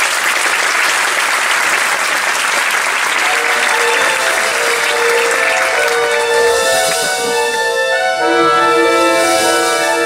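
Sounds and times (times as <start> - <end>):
audience applauding: 0.0 - 10.0
music with long held notes: 3.2 - 10.0.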